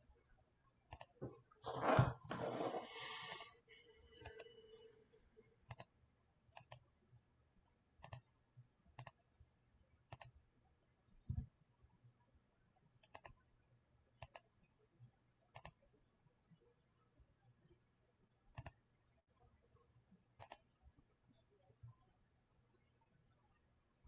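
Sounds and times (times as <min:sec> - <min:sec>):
computer clicks: 0:05.7 - 0:05.9, 0:08.0 - 0:08.2, 0:09.0 - 0:09.2, 0:10.1 - 0:10.4, 0:13.0 - 0:13.4, 0:14.2 - 0:14.5, 0:15.5 - 0:15.8, 0:18.6 - 0:18.8, 0:20.4 - 0:20.7.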